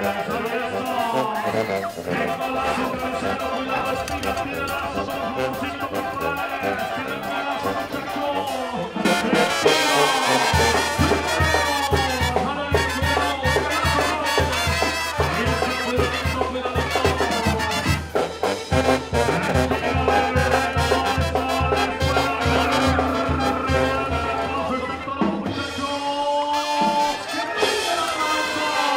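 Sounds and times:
bass horn and drum beat: 0.0s - 28.9s
brass band music: 0.0s - 28.9s.

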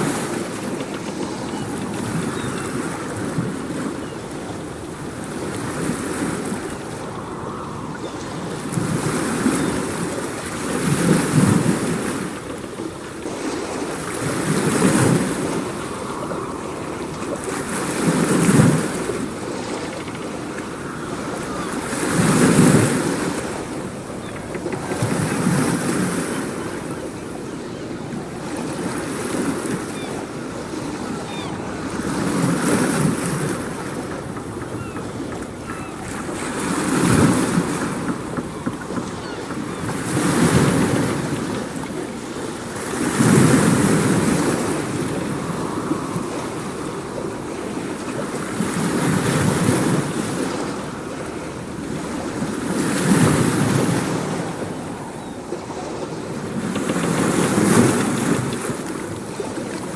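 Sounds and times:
ocean waves breaking: 0.0s - 59.9s.

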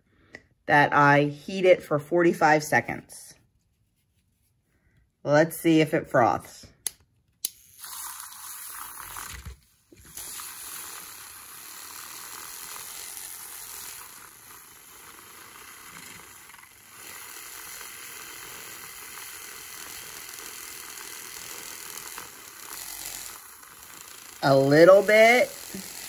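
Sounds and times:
milk frother whirring: 7.4s - 26.0s.

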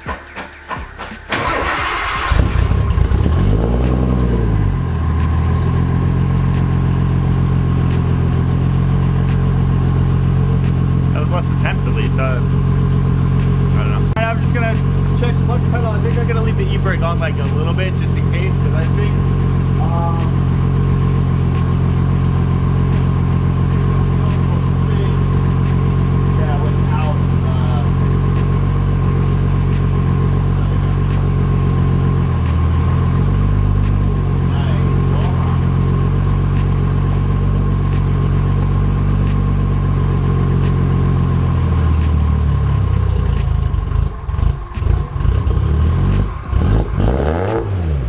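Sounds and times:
engine starter cranking: 0.0s - 3.3s
car engine revving and idling: 0.0s - 48.0s.

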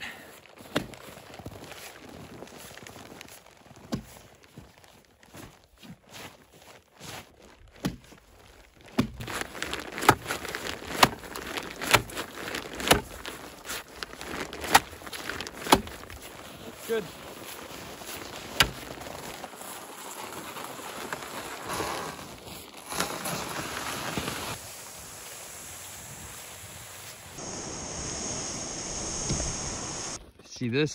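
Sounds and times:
boots crunching on snow: 0.3s - 24.6s
ice chisel striking ice: 15.6s - 16.0s, 18.6s - 18.8s.

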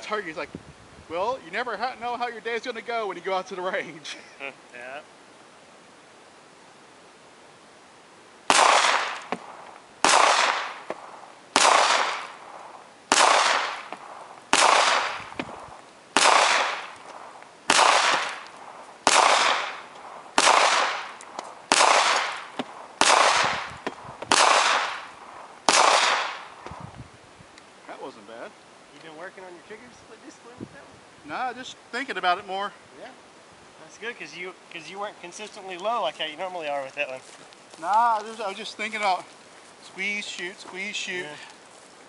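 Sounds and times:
gunshots with echo: 8.5s - 15.4s, 16.2s - 18.4s, 19.0s - 26.5s.

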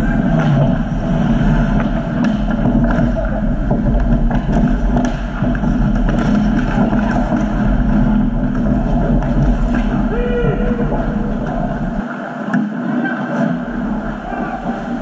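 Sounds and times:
ice rink background rumble: 0.0s - 15.0s
sticks skates and puck clicks: 0.0s - 15.0s.

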